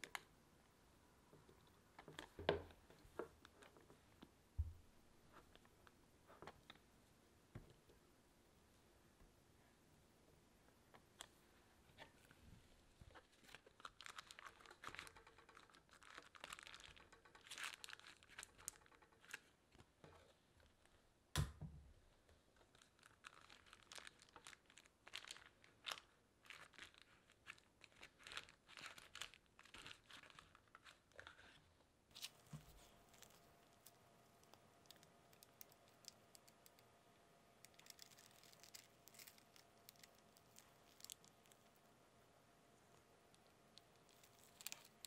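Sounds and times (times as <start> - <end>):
plastic piping bag crinkling: 13.1 - 19.6, 22.6 - 45.0.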